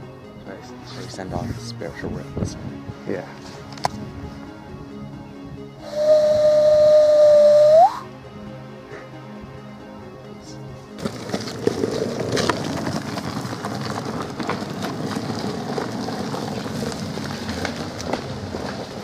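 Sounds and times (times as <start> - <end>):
longboard wheels rumbling: 0.0 - 8.0, 10.9 - 19.0
clicks and crackles of leaves: 11.0 - 19.0.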